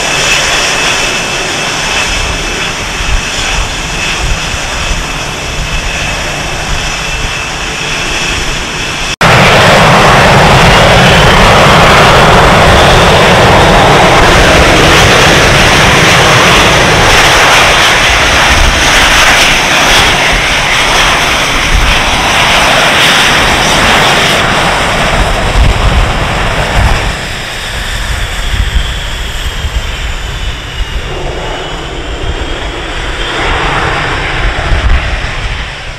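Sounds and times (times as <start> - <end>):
jet engines whining: 0.0 - 35.9
loud rushing jet noise: 0.0 - 35.9.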